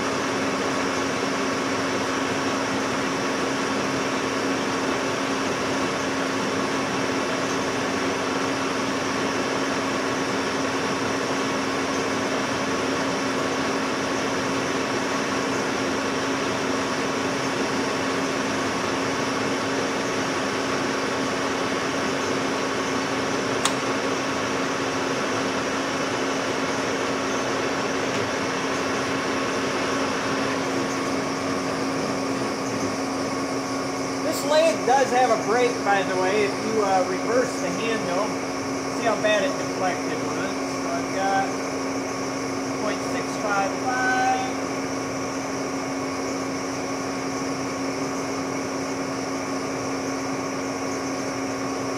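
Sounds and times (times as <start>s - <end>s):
metal lathe motor hum: 0.0s - 51.9s
sharp click: 23.6s - 23.8s.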